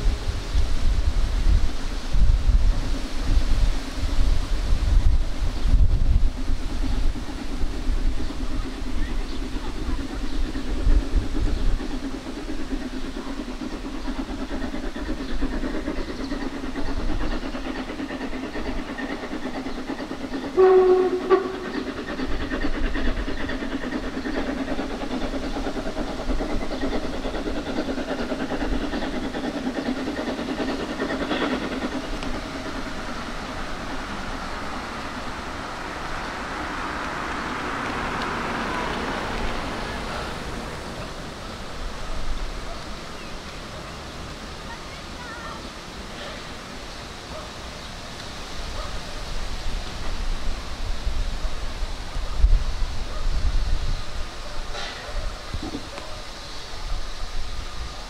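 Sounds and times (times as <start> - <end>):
steam locomotive exhaust beats: 0.0 - 58.0
steam rushing: 0.0 - 58.0
steam whistle blast: 20.6 - 21.6.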